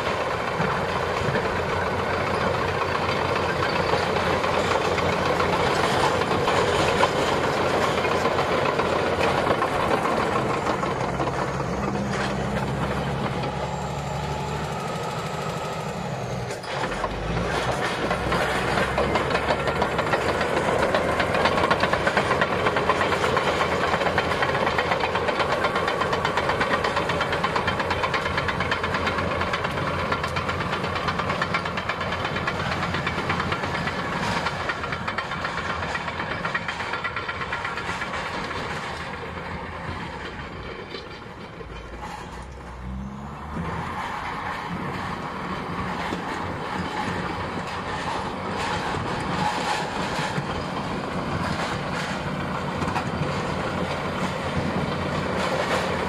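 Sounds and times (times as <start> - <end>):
bulldozer diesel engine under load: 0.0 - 56.0.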